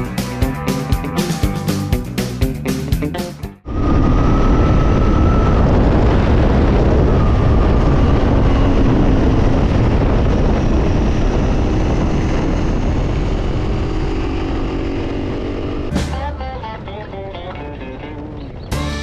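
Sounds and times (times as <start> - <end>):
wind rush: 3.6 - 15.9.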